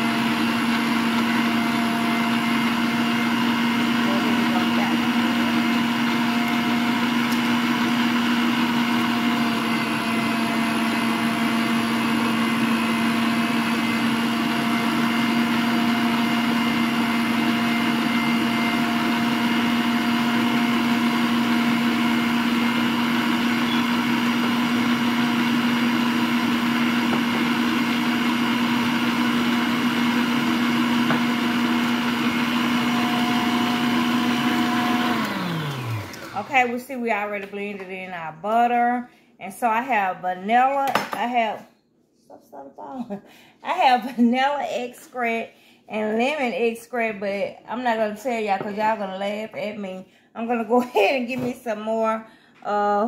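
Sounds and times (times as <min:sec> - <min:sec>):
stand mixer motor humming: 0:00.0 - 0:36.6.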